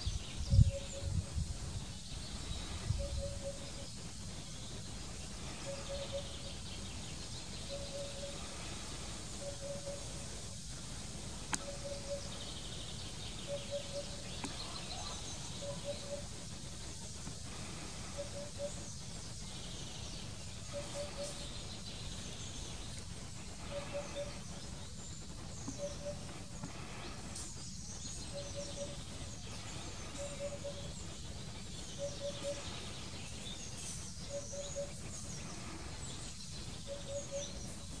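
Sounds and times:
small birds chirping: 0.0 - 38.0
hoopoe hooting: 2.7 - 3.9, 5.4 - 6.6, 7.6 - 10.5, 11.5 - 12.6, 13.4 - 19.0, 20.6 - 21.7, 23.4 - 27.2, 28.2 - 31.2.

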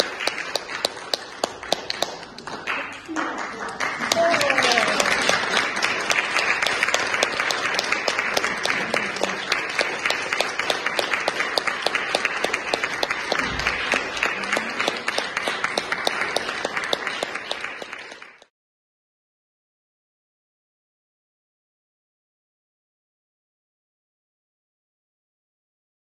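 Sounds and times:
audience applauding: 0.0 - 18.5
sharp close claps: 0.0 - 18.5.

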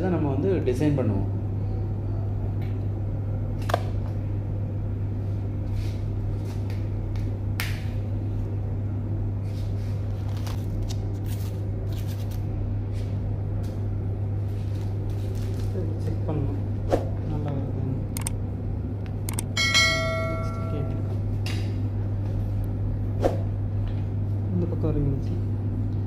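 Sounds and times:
steady low hum: 0.0 - 26.0
paper cones rustling and crinkling: 14.4 - 16.0.

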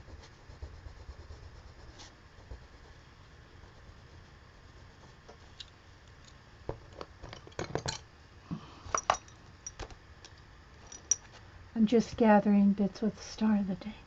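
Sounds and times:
art supplies clinking and tapping: 6.7 - 8.0.

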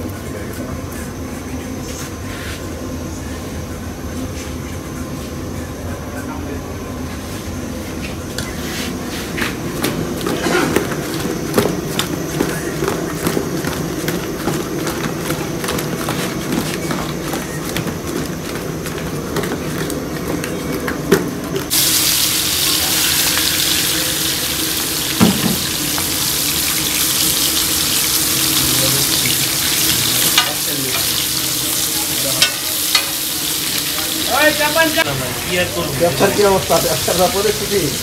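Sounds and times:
food sizzling in hot oil: 21.7 - 38.0.

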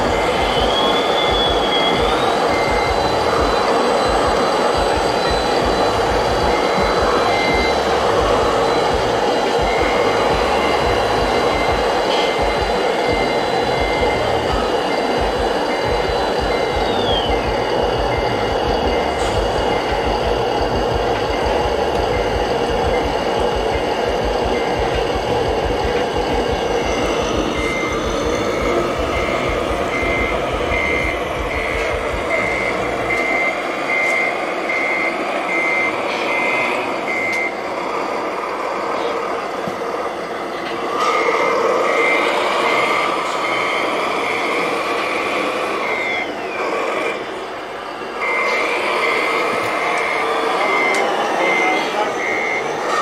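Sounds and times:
deep rumble: 0.0 - 33.3
model machines noise: 0.0 - 53.0
reversing beeper: 0.0 - 53.0.

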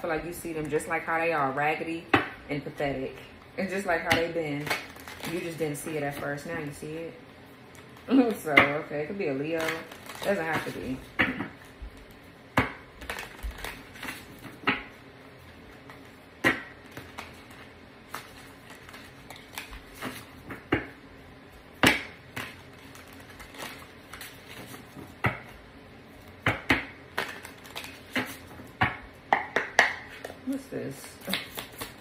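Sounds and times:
cards shuffling with snaps and slaps: 13.0 - 14.9, 15.7 - 20.8, 21.8 - 25.6, 26.2 - 28.7, 29.4 - 32.0.

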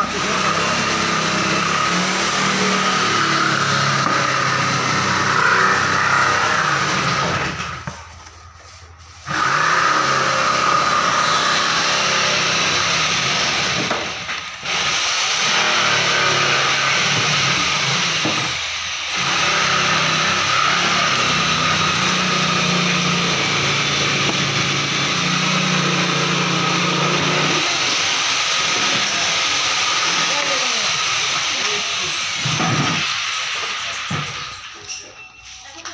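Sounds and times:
workshop machinery whining: 0.0 - 35.9.

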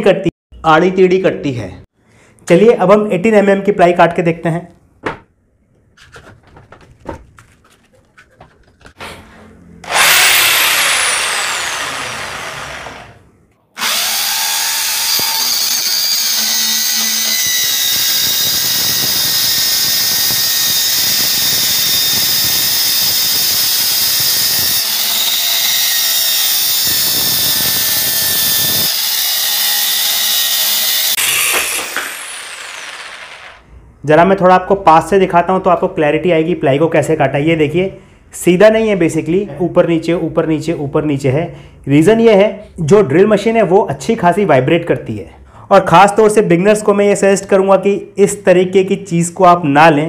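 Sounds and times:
saw blade cutting plywood: 9.0 - 13.2, 13.8 - 33.6
drill with saw attachment running: 9.8 - 13.2, 13.8 - 33.6.

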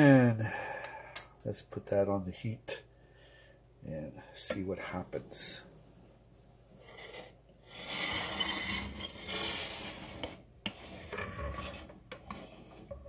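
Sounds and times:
saucepan scraping across stovetop: 6.8 - 13.0.

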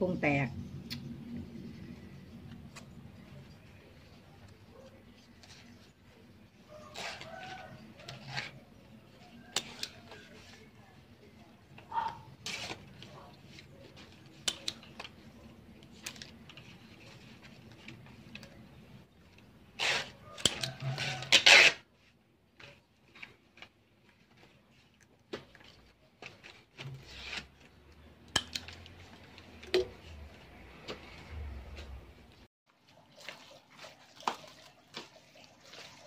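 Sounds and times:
leaves rustling and crinkling: 1.5 - 28.0.

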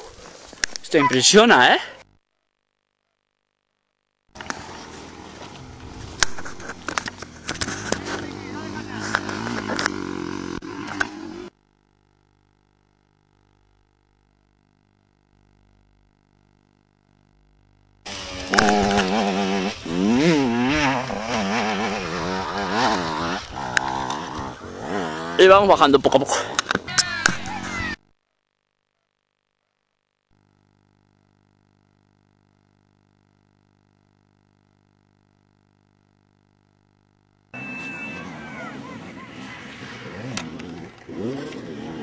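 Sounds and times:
open-air background noise: 0.0 - 11.6
distant motorcycle engines droning: 4.4 - 11.5, 18.1 - 27.9, 37.6 - 42.0.

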